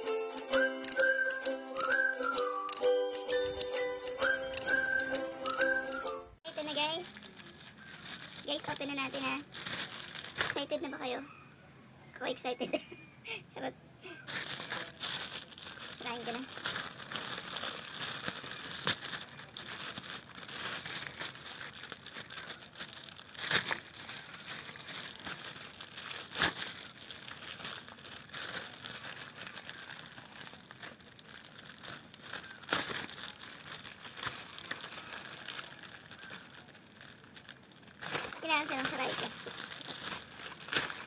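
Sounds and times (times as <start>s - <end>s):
plastic packaging crinkling: 6.5s - 10.8s, 14.2s - 41.0s.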